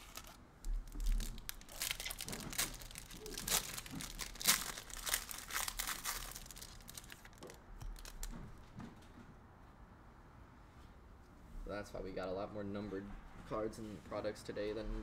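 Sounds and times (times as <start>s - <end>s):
foil wrapper crinkling: 0.0s - 8.3s.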